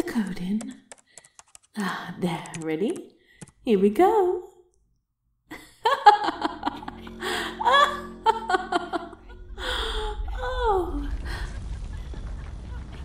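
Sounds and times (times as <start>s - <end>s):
low rumble: 6.2s - 13.0s
woman gasping and laughing: 6.9s - 11.7s.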